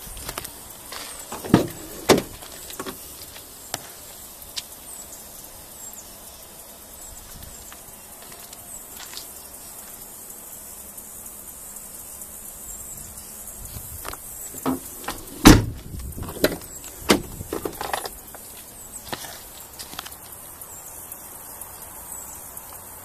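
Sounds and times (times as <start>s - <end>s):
steady high hiss: 0.0s - 23.0s
truck door shutting thump: 1.3s - 3.0s, 14.5s - 18.0s
door clicks and knocks: 14.6s - 18.0s.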